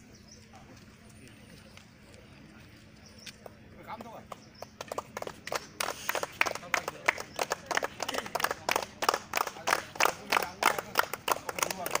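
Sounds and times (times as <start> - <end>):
people clapping: 3.4 - 12.0.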